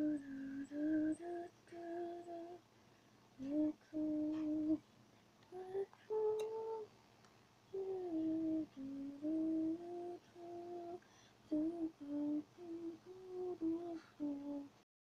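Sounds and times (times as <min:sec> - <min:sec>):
girl humming a slow tune: 0:00.0 - 0:02.6, 0:03.4 - 0:04.8, 0:05.5 - 0:06.9, 0:07.7 - 0:14.8.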